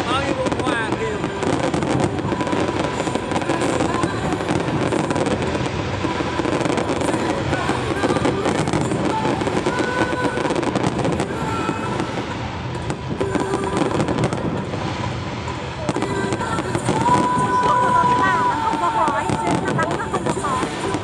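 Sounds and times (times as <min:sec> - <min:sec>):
fireworks bursting and crackling: 0:00.0 - 0:21.0.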